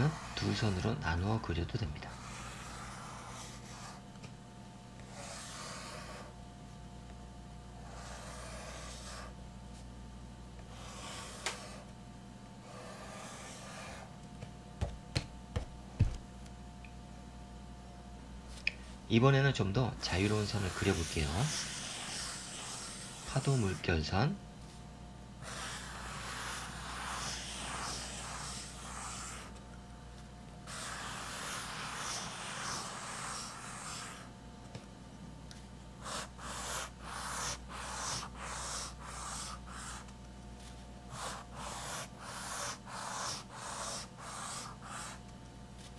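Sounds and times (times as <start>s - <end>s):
pencil scratching on paper: 0.0s - 1.0s, 1.8s - 4.0s, 5.0s - 6.3s, 7.8s - 9.4s, 10.7s - 11.9s, 12.6s - 14.1s, 20.0s - 23.9s, 25.4s - 29.6s, 30.6s - 34.3s, 36.0s - 40.1s, 41.1s - 45.2s.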